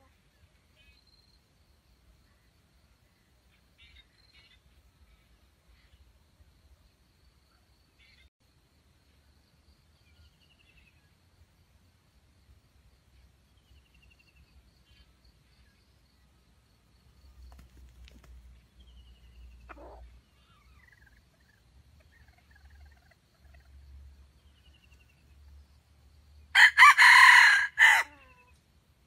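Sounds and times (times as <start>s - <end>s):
small birds chirping: 13.0s - 26.1s
rooster crowing: 26.6s - 28.5s.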